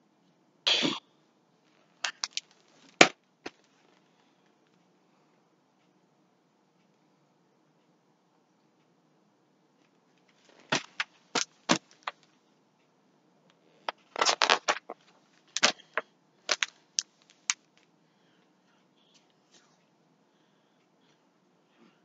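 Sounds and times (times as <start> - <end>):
book knocks and clicks: 10.6 - 12.2.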